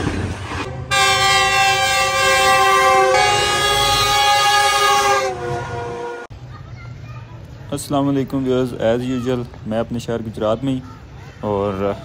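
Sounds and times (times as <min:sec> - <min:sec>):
train air horn blast: 0:00.7 - 0:06.3.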